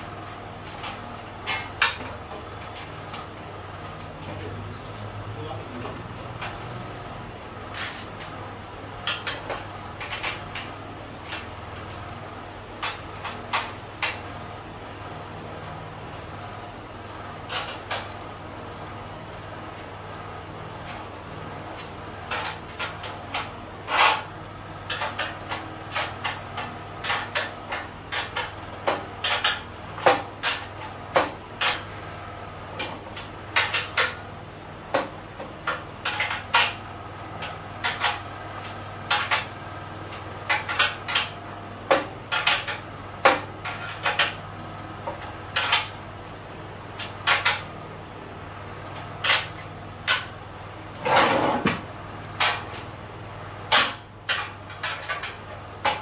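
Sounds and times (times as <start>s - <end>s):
bolts clinking against metal frame: 39.2s - 41.3s.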